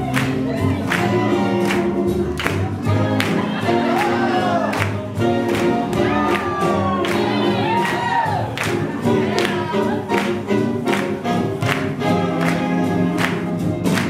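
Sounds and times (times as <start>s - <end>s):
person singing: 0.0s - 10.6s
drums keeping a steady beat: 0.0s - 14.0s
swing jazz music: 0.0s - 14.0s.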